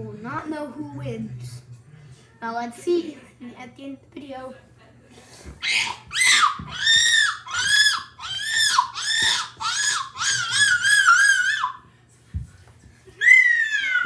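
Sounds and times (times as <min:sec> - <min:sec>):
child squealing: 0:05.6 - 0:11.8, 0:13.2 - 0:14.0.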